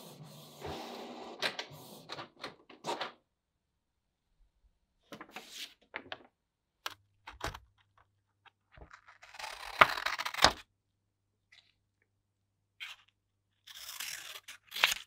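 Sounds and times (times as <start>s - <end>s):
paper rustling: 5.1s - 6.3s
scissors cutting paper: 8.9s - 10.6s, 12.8s - 15.0s.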